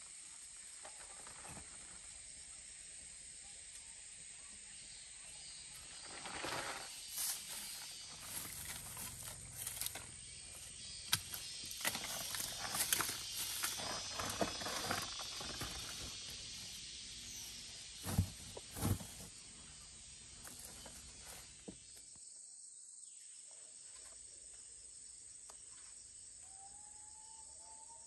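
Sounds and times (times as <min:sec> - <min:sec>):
insects hissing: 0:00.0 - 0:28.0
leaves crackling underfoot: 0:05.9 - 0:19.4.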